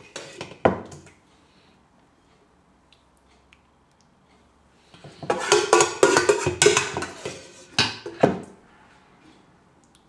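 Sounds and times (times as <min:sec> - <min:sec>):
metal spoon clanking in pot: 0:00.0 - 0:01.0, 0:05.3 - 0:08.2.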